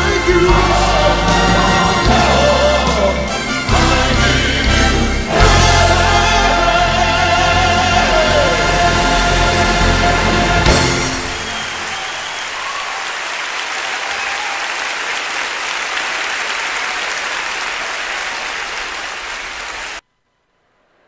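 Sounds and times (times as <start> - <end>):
congregation clapping: 11.1 - 20.0.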